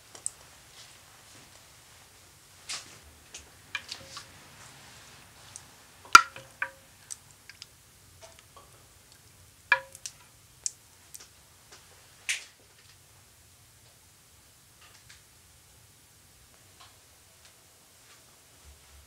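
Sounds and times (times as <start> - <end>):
soft wet stirring sound: 0.0 - 12.0.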